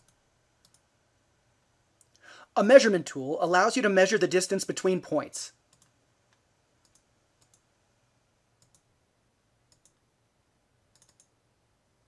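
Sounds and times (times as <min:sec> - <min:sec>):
faint computer mouse clicks: 0:00.0 - 0:00.8, 0:05.7 - 0:07.6, 0:08.6 - 0:08.9, 0:09.7 - 0:10.0, 0:10.9 - 0:11.4.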